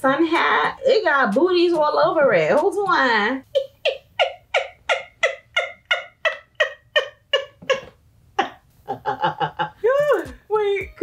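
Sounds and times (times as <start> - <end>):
woman laughing hard: 3.4 - 10.2.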